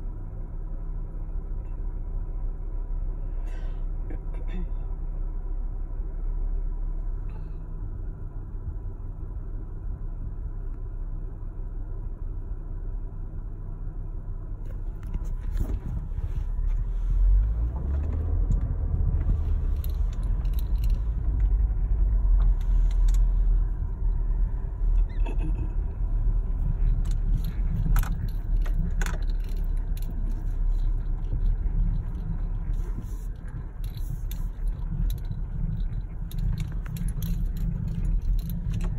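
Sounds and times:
car engine and tyre rumble: 0:00.0 - 0:38.9
light rattles and clicks: 0:14.6 - 0:38.9.

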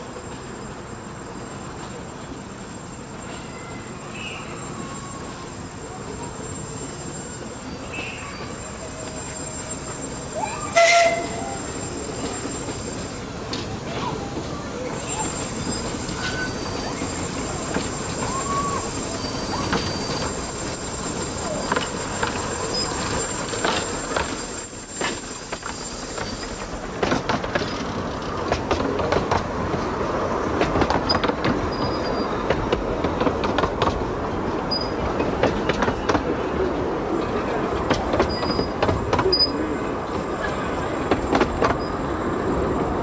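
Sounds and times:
steam train passing: 0:00.0 - 0:43.0
wheels clicking over rail joints: 0:12.1 - 0:34.1.

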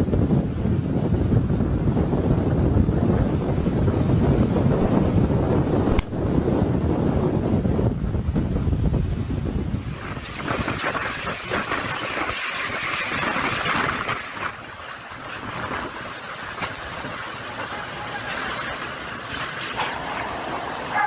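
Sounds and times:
rushing wind: 0:00.0 - 0:21.0
driving rain ticks: 0:10.0 - 0:21.0.

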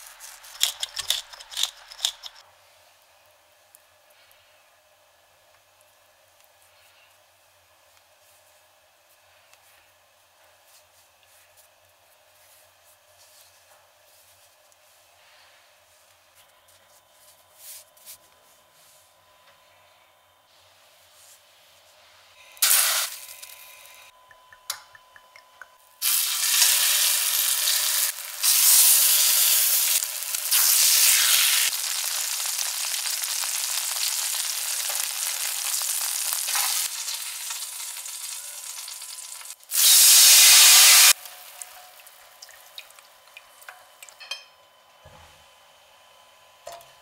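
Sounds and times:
cutlets sizzling in hot oil: 0:22.6 - 0:23.4, 0:26.0 - 0:43.1.

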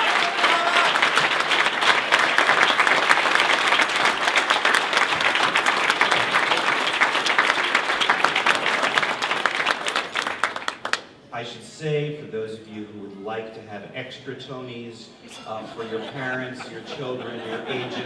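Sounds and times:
crowd applauding: 0:00.0 - 0:11.1.

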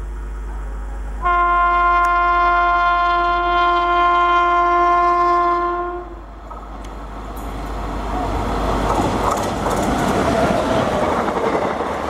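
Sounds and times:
locomotive horn blast: 0:01.2 - 0:06.3.

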